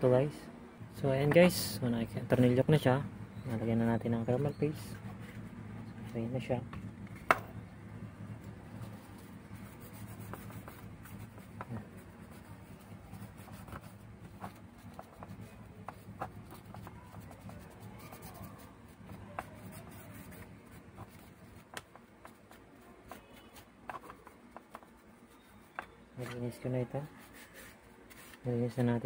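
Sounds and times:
low steady hum: 0.0s - 29.0s
wipe rubbing circuit board: 8.4s - 29.0s.

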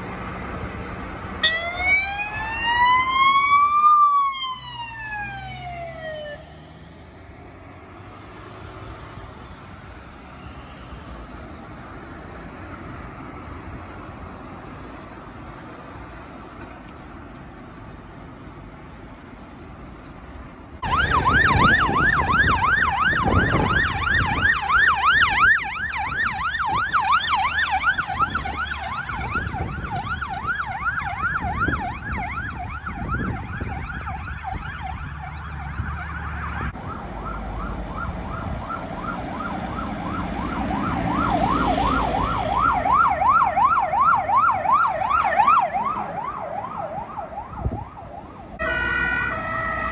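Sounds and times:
faint traffic: 0.0s - 49.9s
siren yelping: 1.4s - 6.6s, 20.8s - 49.9s.

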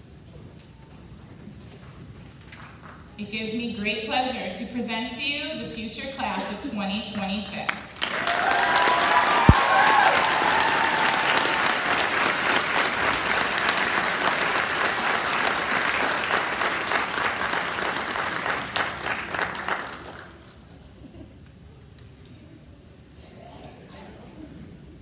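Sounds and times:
audience applauding: 7.9s - 20.5s
high cheers: 8.0s - 12.3s.

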